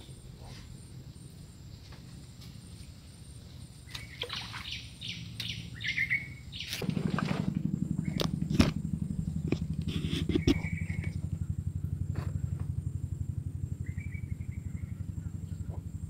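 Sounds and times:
birds chirping: 0.0s - 16.0s
small engine running: 4.0s - 16.0s.

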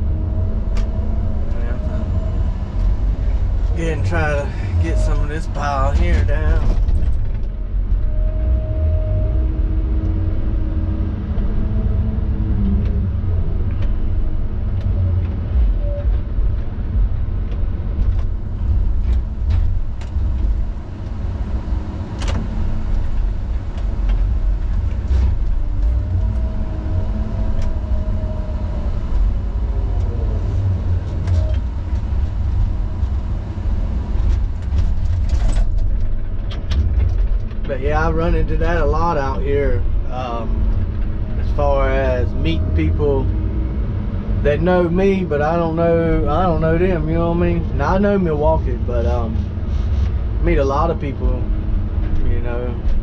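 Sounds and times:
road noise: 0.0s - 53.0s
truck engine rumble: 0.0s - 53.0s
faint clicks and rattles: 34.2s - 37.8s.

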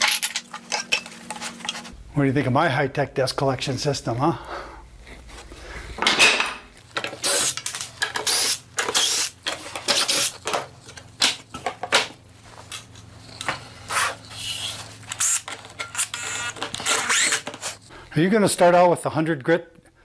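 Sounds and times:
wooden parts clattering: 0.0s - 2.0s, 6.0s - 17.8s.

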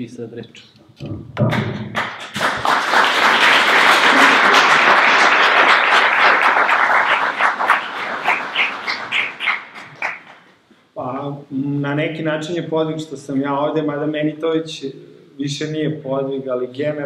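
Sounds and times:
audience applauding: 2.0s - 10.5s.

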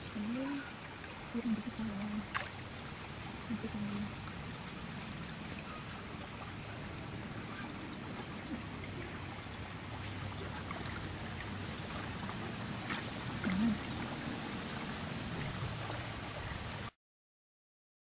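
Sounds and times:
stream water splashing: 0.0s - 17.0s
small drips and clicks: 0.2s - 2.8s, 7.5s - 14.5s.

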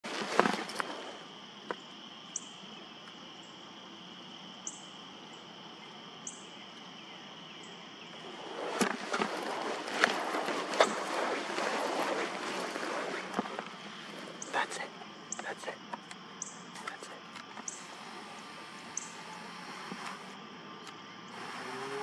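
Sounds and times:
high-pitched insect chorus: 0.1s - 22.0s
very high chirps: 16.4s - 19.5s.

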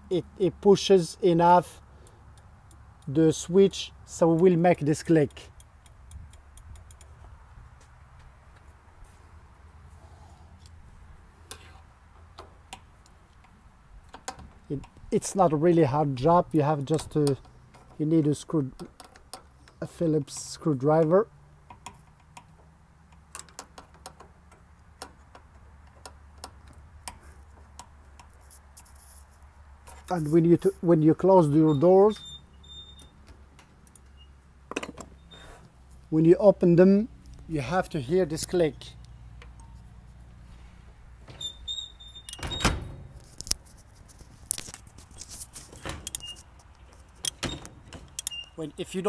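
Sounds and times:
screwdriver clicking on metal: 48.1s - 48.4s.

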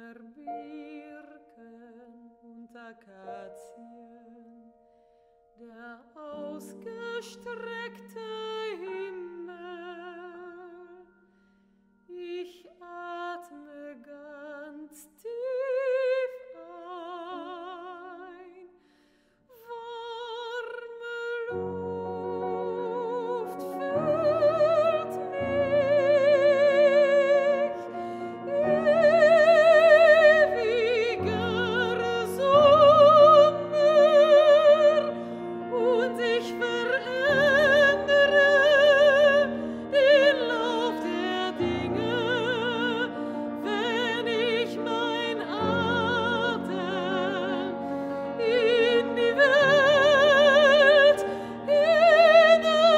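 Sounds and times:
woman singing with vibrato: 0.0s - 4.7s, 19.5s - 52.9s
piano chords: 20.6s - 52.9s.

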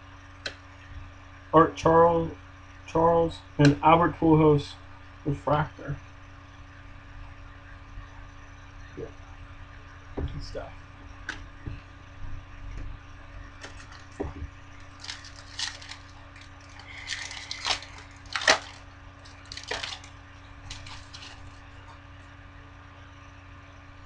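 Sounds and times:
foil wrapper tearing and crinkling: 13.6s - 14.2s, 14.8s - 21.7s.

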